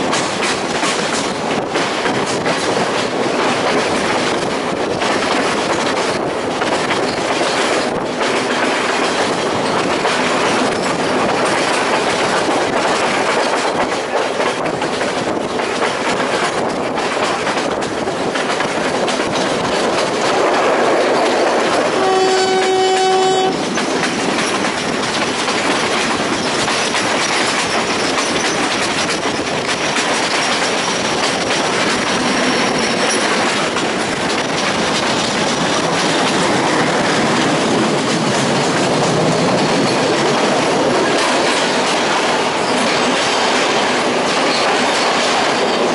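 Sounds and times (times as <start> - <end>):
train wheels clattering on rails: 0.0 - 45.9
train horn blast: 21.9 - 23.6.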